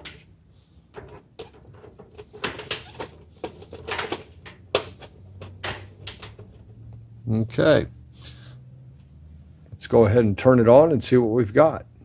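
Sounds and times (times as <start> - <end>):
tube clicking and scraping in fixture: 0.9 - 6.9.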